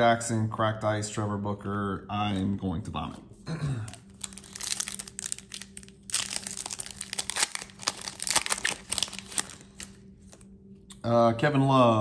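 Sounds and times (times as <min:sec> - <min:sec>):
foil wrapper crinkling: 0:03.9 - 0:10.4.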